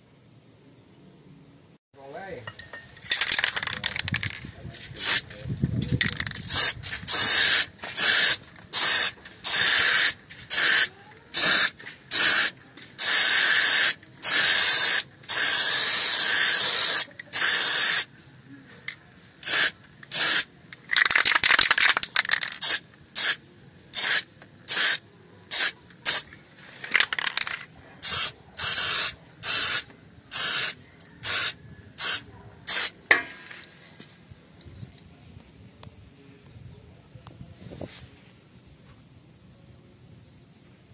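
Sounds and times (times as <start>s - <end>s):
spray paint can hissing: 3.1s - 5.3s, 6.0s - 18.1s, 19.4s - 33.0s.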